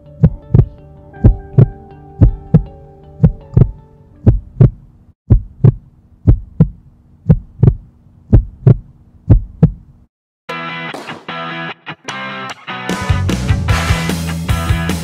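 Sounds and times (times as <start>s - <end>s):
heartbeat thumps: 0.0s - 10.0s.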